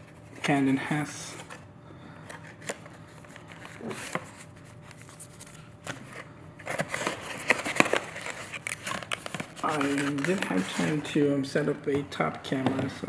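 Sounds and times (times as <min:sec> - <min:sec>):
paper scraping and crinkling: 0:02.3 - 0:11.4
cardboard box being opened: 0:06.6 - 0:11.0.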